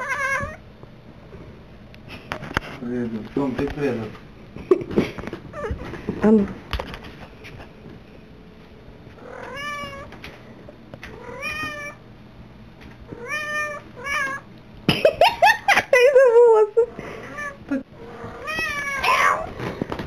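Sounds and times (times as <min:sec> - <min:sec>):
cat meowing: 0:00.0 - 0:00.6, 0:09.2 - 0:10.1, 0:11.1 - 0:12.0, 0:13.1 - 0:14.4, 0:18.2 - 0:19.5.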